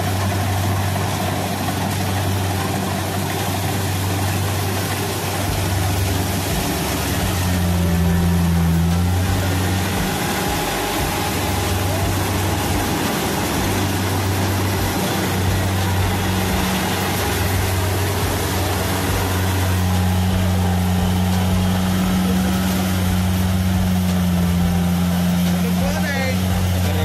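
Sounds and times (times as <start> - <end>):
diesel engine drone: 0.0 - 27.0
rush of harvester machinery: 0.0 - 27.0.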